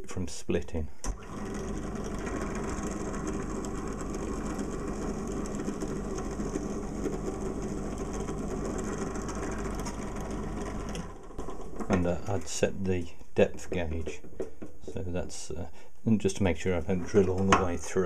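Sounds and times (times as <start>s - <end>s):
drill press drilling wood: 1.1s - 12.0s.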